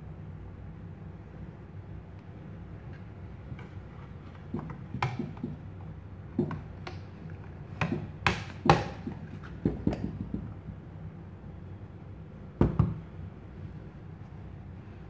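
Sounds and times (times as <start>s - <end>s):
metal plate knocking on plastic: 4.5s - 5.7s.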